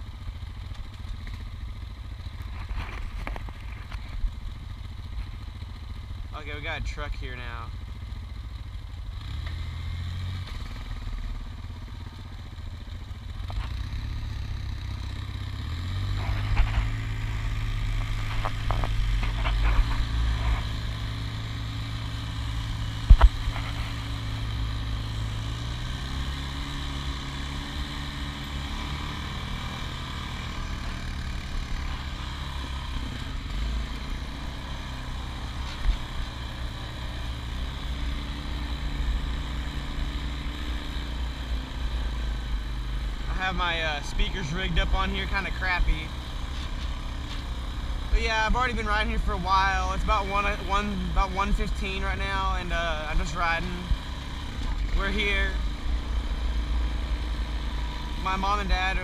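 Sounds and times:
atv engine running: 0.0 - 59.0
knocks and rattles over bumps: 15.8 - 41.2.

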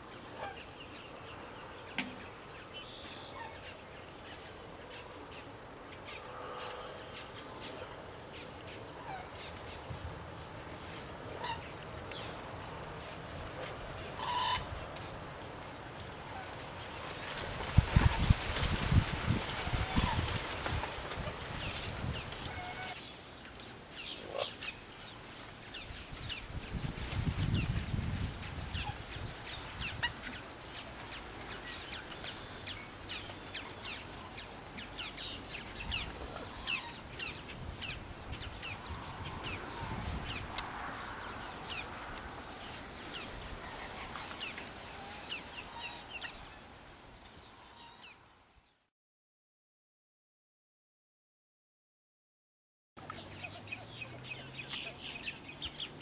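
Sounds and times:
wind rumbling on microphone: 16.8 - 23.0, 25.7 - 30.3, 35.4 - 44.5
birds chirping: 53.0 - 56.0.

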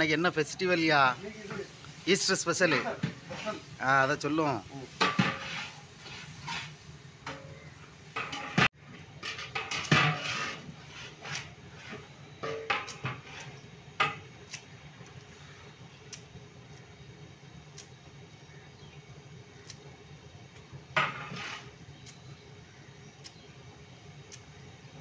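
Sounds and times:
metal pot lid and ladle clanking: 8.2 - 10.6, 12.4 - 13.2.

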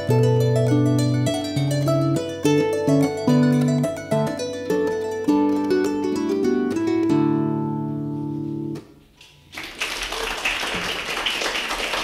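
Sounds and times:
audience applause: 9.5 - 12.0.

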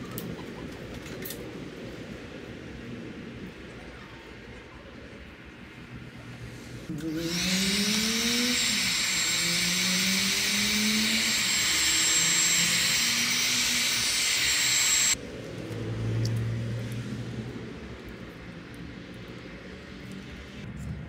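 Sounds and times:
heat gun blowing air: 6.9 - 15.2.

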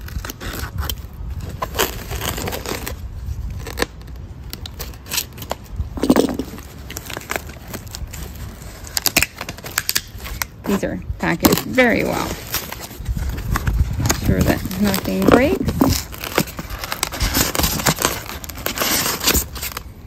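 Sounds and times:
knife slicing tape and cardboard: 0.0 - 5.6, 11.2 - 19.8
tape tearing scrapes: 0.0 - 19.9.

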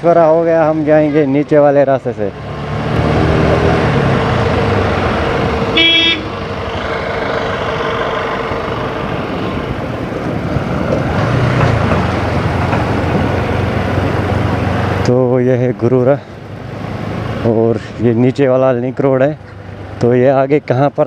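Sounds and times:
motorcycle road and engine noise: 0.0 - 21.0
vehicle horn toot: 5.7 - 6.4.

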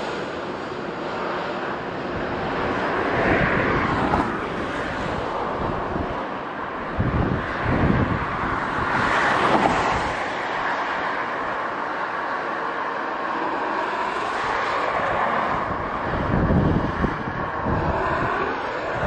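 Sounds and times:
jet engine roar: 0.0 - 19.0
wind buffeting microphone: 1.7 - 11.9, 14.0 - 19.0.

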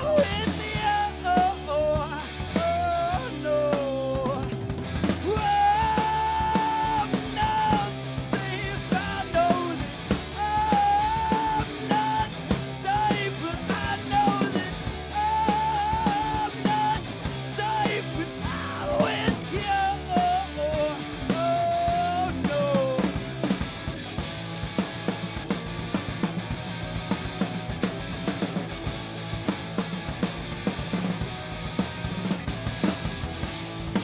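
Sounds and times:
man singing: 0.0 - 4.6, 5.2 - 23.2
drum kit beat: 0.0 - 34.0
electric bass: 0.0 - 34.0
electric guitar: 0.0 - 34.0.

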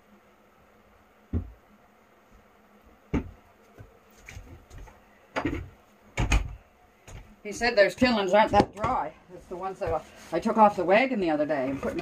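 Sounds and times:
knocks and thumps: 1.3 - 1.6, 3.1 - 7.3.

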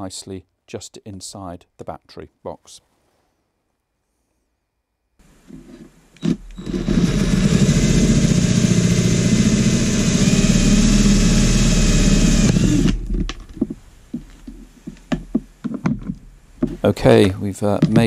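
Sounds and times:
electric drill cutting plastic: 6.2 - 13.2.

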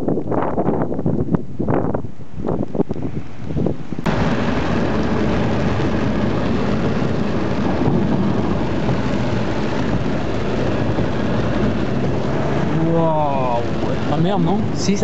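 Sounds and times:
car driving through heavy rain: 4.1 - 15.0.

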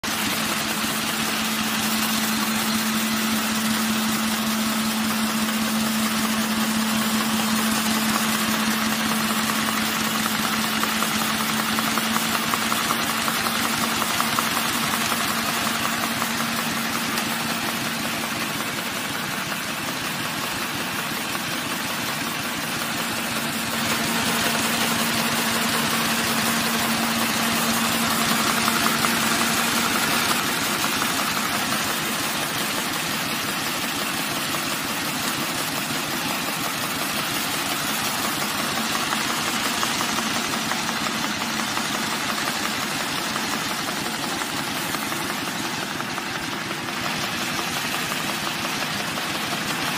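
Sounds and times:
machine clattering with a hum: 0.0 - 49.9.

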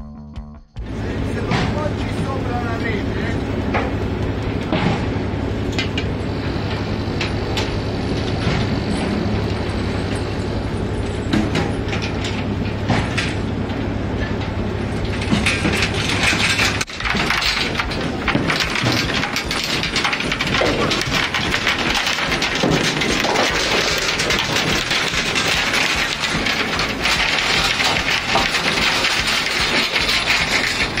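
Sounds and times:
boat engine humming: 0.8 - 16.0
net gear knocking and clatter: 15.0 - 31.0.

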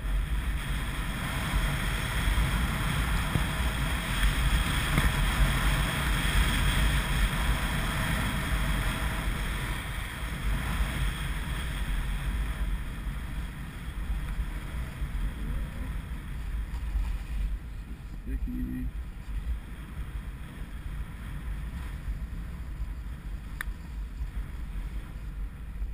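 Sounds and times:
wind buffeting microphone: 0.0 - 25.9
skis hissing over snow: 0.1 - 18.1.

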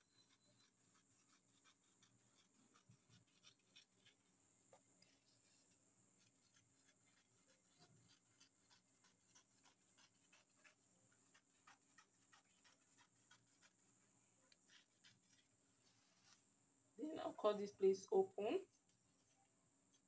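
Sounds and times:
scissors snipping cloth: 0.0 - 4.2, 6.2 - 13.8
fabric rustling: 14.6 - 16.5.

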